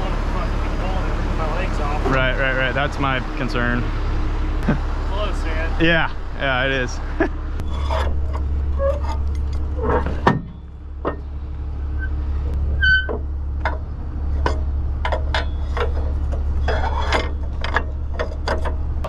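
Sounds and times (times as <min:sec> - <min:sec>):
diesel engine idling: 0:00.0 - 0:19.0
metal clicks and clanks: 0:12.6 - 0:18.9.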